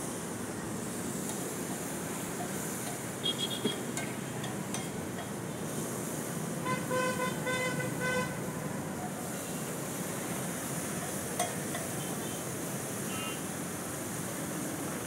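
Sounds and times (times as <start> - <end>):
food sizzling on a griddle: 0.0 - 7.5, 8.8 - 15.0
street traffic hiss: 0.0 - 15.0
vehicle horn honking: 3.2 - 3.8, 6.6 - 8.4, 13.1 - 13.5.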